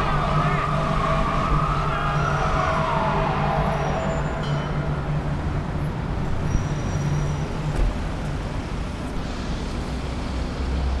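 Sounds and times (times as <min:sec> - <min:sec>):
fire engine diesel hum: 0:00.0 - 0:06.5
city traffic noise: 0:00.0 - 0:11.0.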